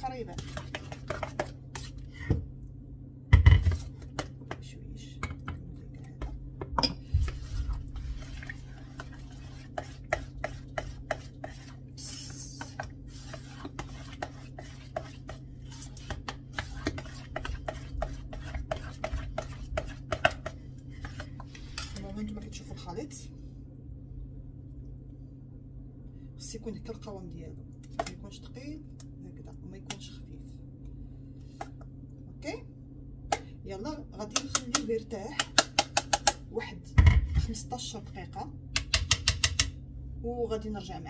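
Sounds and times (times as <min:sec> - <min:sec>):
steady low hum: 0:00.0 - 0:41.0
wire whisk scraping metal bowl: 0:12.6 - 0:22.1.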